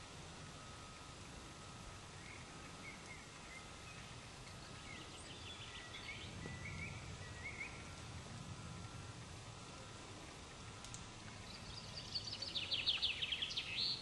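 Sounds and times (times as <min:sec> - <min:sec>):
faint bird chirps: 0:01.6 - 0:09.0, 0:11.4 - 0:14.0.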